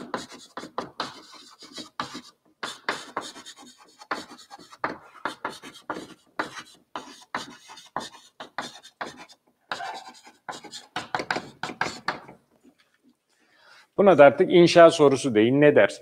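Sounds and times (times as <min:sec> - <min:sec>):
chalk tapping and scratching: 0:00.0 - 0:12.4.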